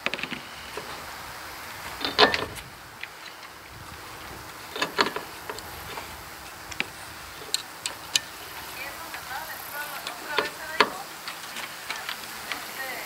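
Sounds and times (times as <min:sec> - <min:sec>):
wind noise: 0:00.0 - 0:13.0
clicks and knocks of tools: 0:02.0 - 0:03.6, 0:04.7 - 0:09.3, 0:09.9 - 0:12.7.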